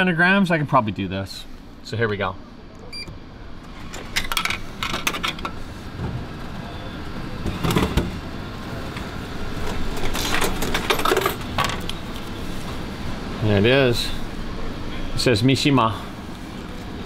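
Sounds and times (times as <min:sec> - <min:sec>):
vending machine clicks and clunks: 0:07.4 - 0:08.2.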